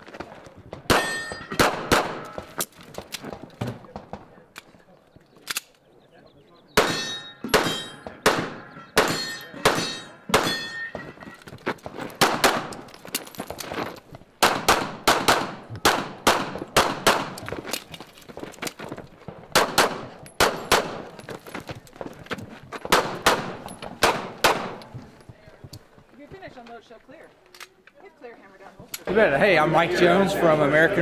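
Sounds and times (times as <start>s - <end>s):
pistol shots: 0.9s - 2.6s, 6.8s - 10.8s, 12.2s - 12.9s, 14.4s - 17.4s, 19.5s - 21.2s, 22.8s - 24.9s.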